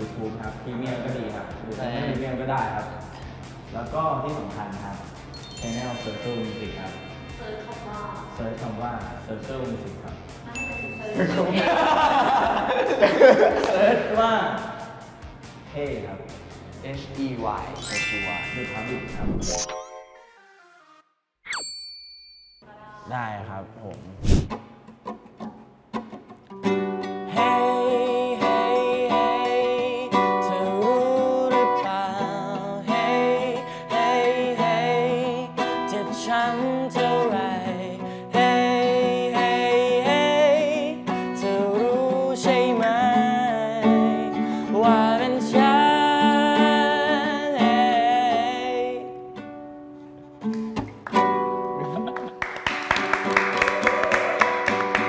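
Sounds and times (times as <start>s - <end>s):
acoustic guitar strumming: 5.3s - 8.8s, 24.5s - 51.9s
man singing: 27.3s - 49.2s.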